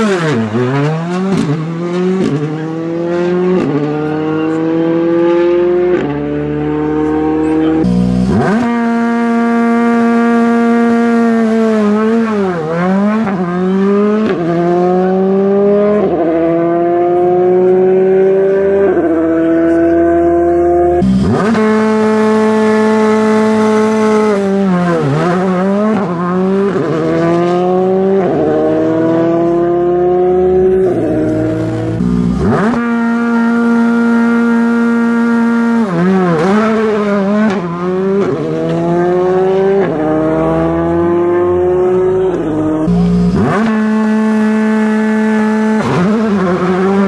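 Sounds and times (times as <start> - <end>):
quick gear upshifts: 0.0 - 47.0
rally car engines revving: 0.0 - 47.0.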